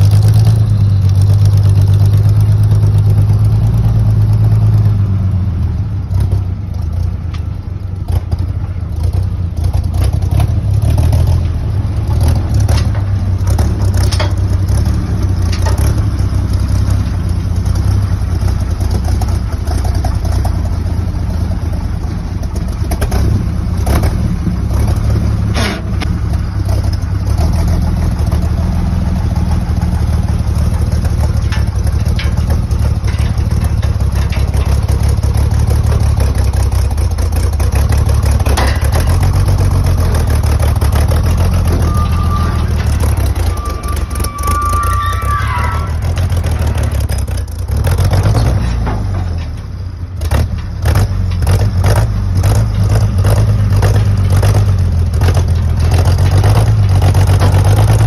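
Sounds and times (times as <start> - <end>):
truck engine idling: 0.0 - 58.0
metallic clanks and knocks: 7.3 - 21.4, 22.3 - 58.0.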